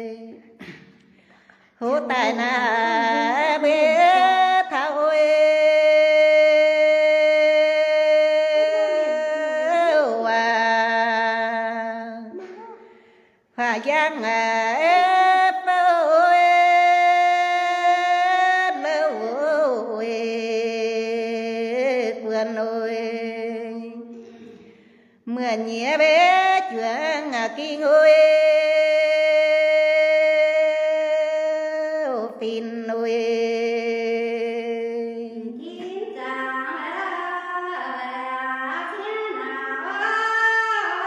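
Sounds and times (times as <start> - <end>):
woman singing solo: 1.8 - 5.2.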